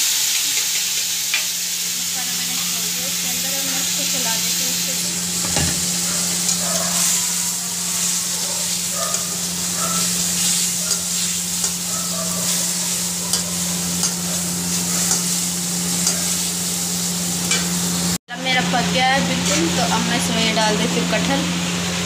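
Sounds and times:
food sizzling in hot oil: 0.0 - 22.0
metal spatula scraping pan: 12.5 - 16.4.

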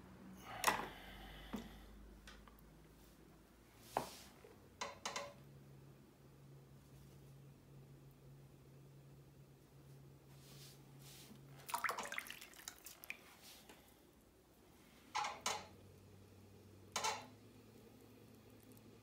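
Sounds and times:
water splashing and dripping: 11.6 - 13.4.

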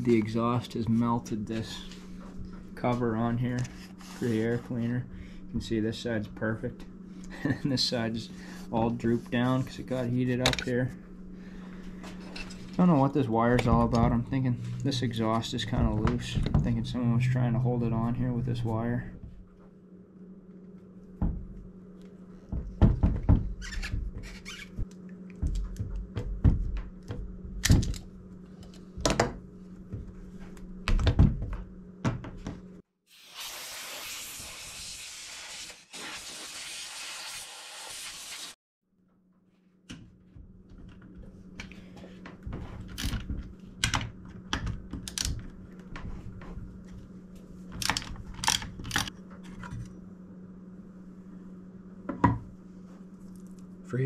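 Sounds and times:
compressed air hiss: 33.1 - 38.6.

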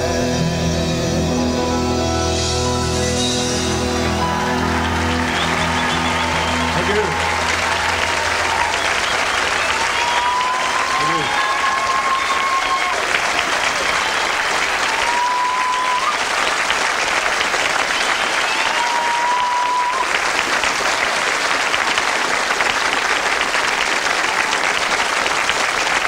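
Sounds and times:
brief rising high tones: 0.4 - 10.9
audience applauding: 3.0 - 26.0.

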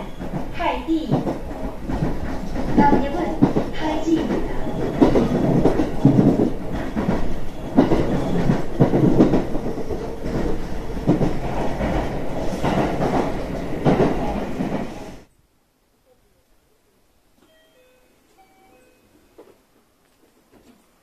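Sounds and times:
wheel clacks over rail joints: 0.0 - 14.8
train rumbling on track: 0.0 - 15.3.

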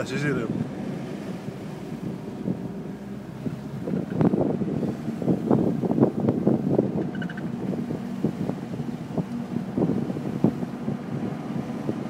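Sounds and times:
car engine running: 0.0 - 12.0
tyre and wind noise: 0.0 - 12.0.

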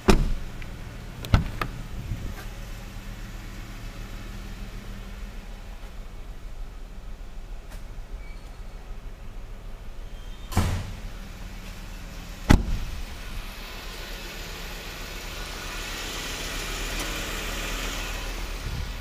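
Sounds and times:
car door thud: 0.0 - 0.6, 1.2 - 2.5, 10.5 - 11.0, 12.5 - 13.0
car door slamming: 0.0 - 2.6, 10.4 - 11.1, 12.4 - 13.3
steady low hum: 0.0 - 15.7.

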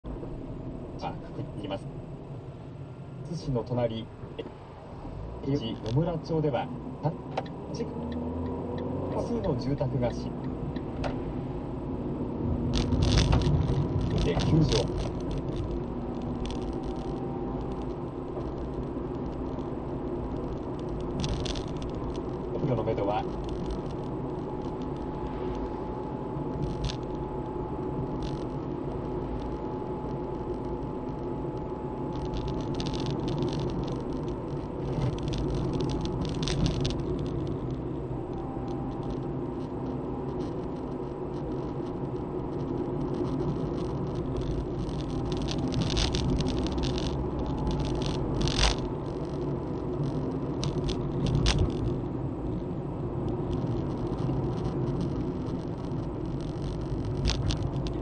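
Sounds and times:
car driving on wet road: 0.1 - 58.0
sharp rattles: 20.3 - 25.7, 32.1 - 37.8, 40.3 - 52.1.

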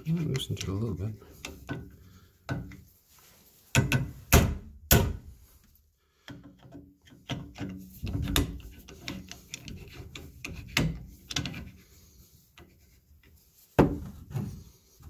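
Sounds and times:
chisel scraping and knocking on metal: 0.2 - 2.8, 3.7 - 4.2, 6.2 - 11.8.

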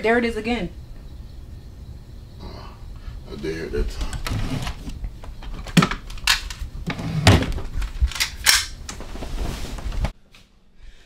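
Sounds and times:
drawer opening: 4.0 - 6.2, 6.8 - 7.8
handgun handling clicks: 5.7 - 6.6, 8.1 - 8.8.

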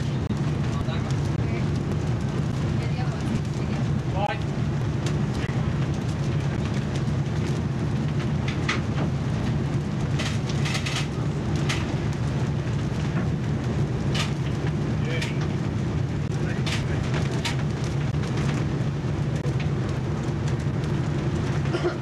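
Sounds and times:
strong wind on microphone: 0.0 - 21.8.

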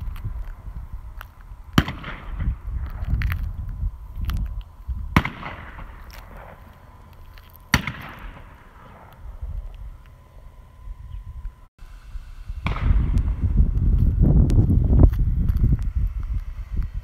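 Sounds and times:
low rumble: 0.0 - 17.0
gunshots with echo: 7.7 - 9.1.

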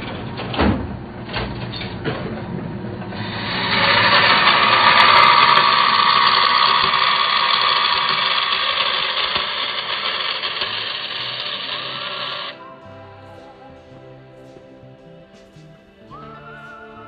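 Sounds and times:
bandsaw cutting sheet metal: 3.1 - 12.6.

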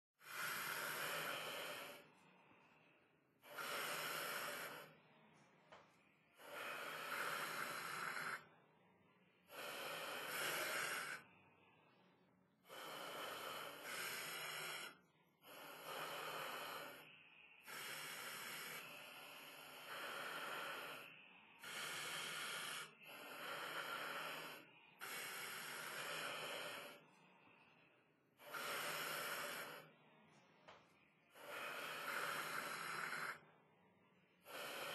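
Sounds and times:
puppy breathing noisily: 31.3 - 33.4.

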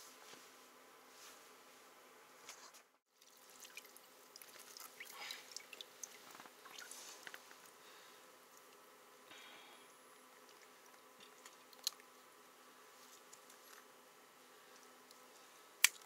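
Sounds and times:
water dripping and splashing: 3.2 - 7.7.

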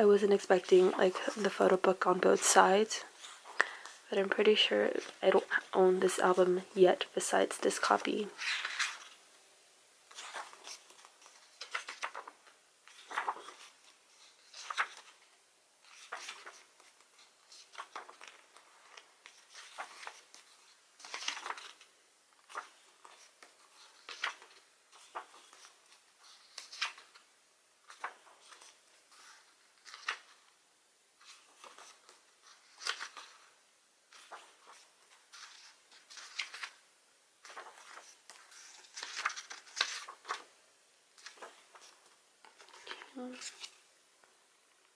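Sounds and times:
book pages turning: 7.8 - 9.2, 10.1 - 30.5, 31.2 - 36.8, 37.4 - 40.5, 41.2 - 43.8.

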